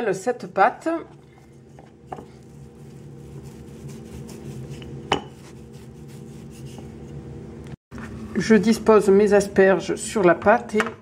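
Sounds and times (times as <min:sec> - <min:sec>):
rolling pin rolling dough: 0:01.2 - 0:07.3.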